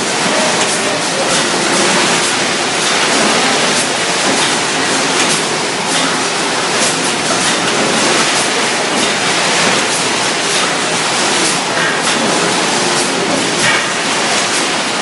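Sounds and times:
machinery steady rushing noise: 0.0 - 15.0.

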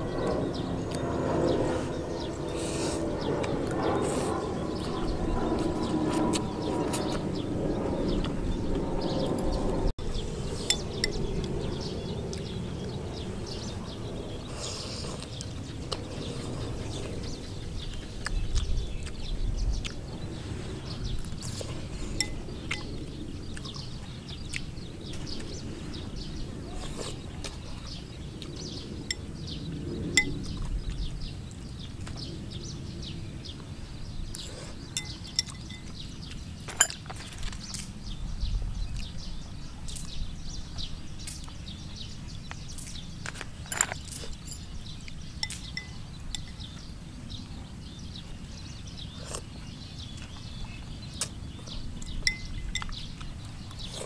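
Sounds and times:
chopsticks clinking on bowl: 35.0 - 36.0, 45.4 - 46.7, 52.0 - 53.0.

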